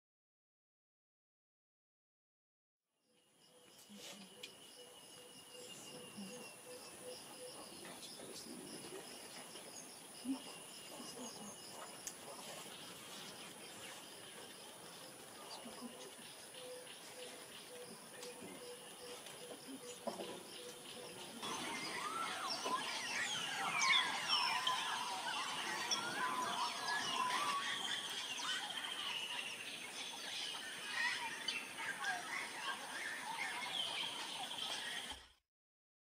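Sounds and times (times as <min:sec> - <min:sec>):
outdoor ambience: 0:03.0 - 0:35.4
flock of parrots calling: 0:17.4 - 0:35.2.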